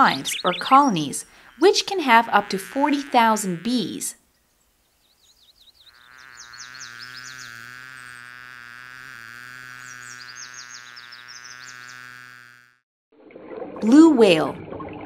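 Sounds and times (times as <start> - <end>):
cartoon bee buzzing: 0.0 - 4.2, 5.2 - 12.8
high twittering chirps: 0.0 - 12.2.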